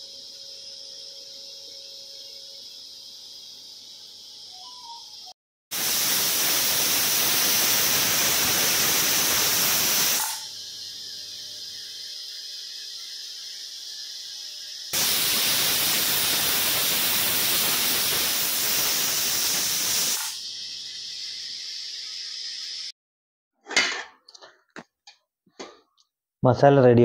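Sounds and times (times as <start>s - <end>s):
pressure cooker steam hiss: 5.7s - 22.9s.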